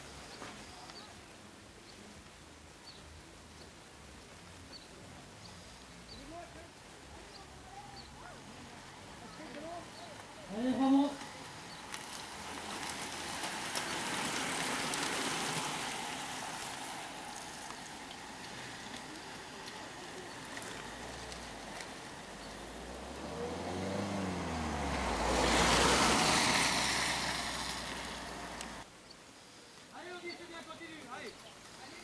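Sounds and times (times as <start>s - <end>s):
racing bicycles whirring past: 9.1s - 28.8s
car engine: 10.5s - 28.9s
car tyre noise rushing: 11.4s - 28.9s.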